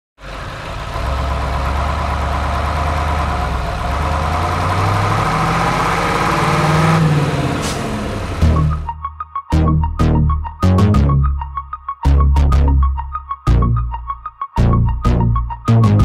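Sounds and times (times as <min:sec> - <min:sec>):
engine revving: 0:00.2 - 0:08.9.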